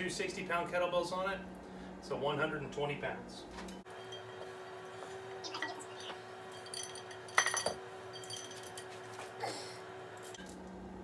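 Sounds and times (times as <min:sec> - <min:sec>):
steel chain clinking and rattling: 0:06.5 - 0:09.0.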